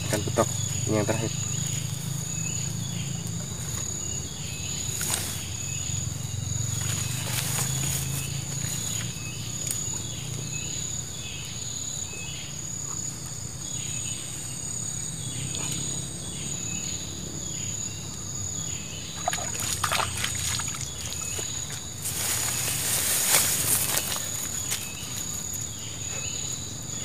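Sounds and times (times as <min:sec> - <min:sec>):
insects shrilling: 0:00.0 - 0:12.8, 0:13.8 - 0:27.0
rustles and knocks in grass: 0:04.9 - 0:05.6, 0:06.6 - 0:10.0, 0:19.2 - 0:25.6.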